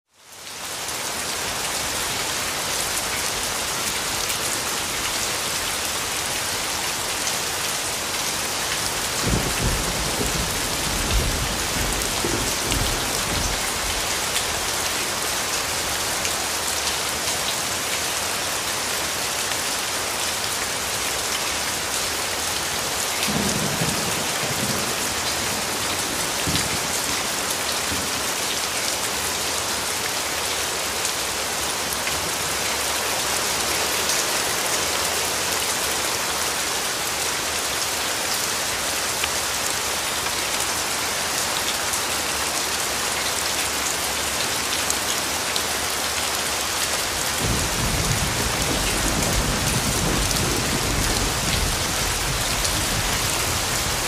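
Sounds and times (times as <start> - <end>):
heavy rain on hard surfaces: 0.0 - 54.0.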